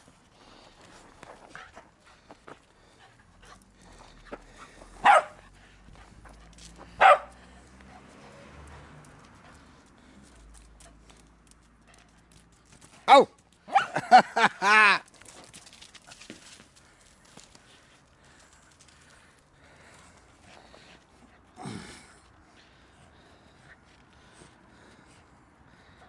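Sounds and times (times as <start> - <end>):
small dog barking: 5.0 - 5.4, 7.0 - 7.4, 13.1 - 14.0.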